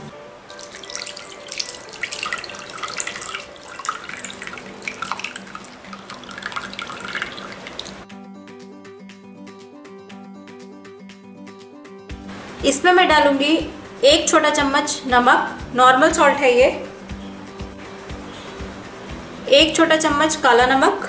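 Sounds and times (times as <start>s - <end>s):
liquid pouring and splashing: 0.5s - 8.1s.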